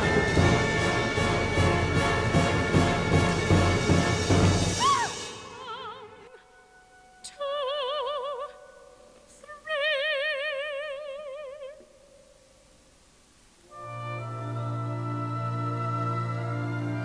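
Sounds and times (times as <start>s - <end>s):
loud orchestral passage: 0.0s - 5.7s
operatic woman singing: 4.8s - 6.5s, 7.2s - 11.9s, 14.6s - 17.0s.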